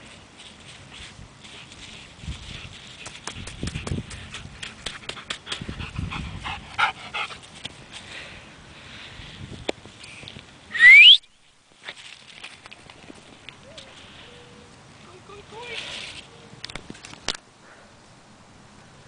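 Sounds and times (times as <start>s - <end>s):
rising whistle: 10.7s - 11.3s.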